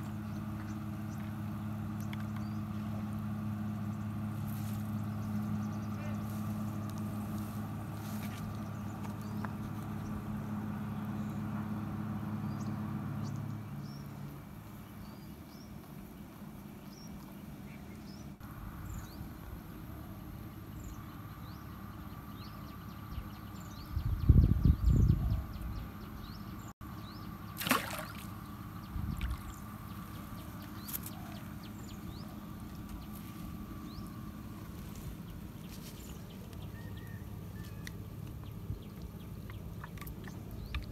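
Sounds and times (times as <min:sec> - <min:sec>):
small birds chirping: 0:00.0 - 0:03.1, 0:03.8 - 0:11.6, 0:12.4 - 0:19.3, 0:20.4 - 0:40.9
low engine drone: 0:00.0 - 0:40.9
steady outdoor hiss: 0:00.0 - 0:40.9
fish splashing in water: 0:27.6 - 0:28.4, 0:39.6 - 0:40.9.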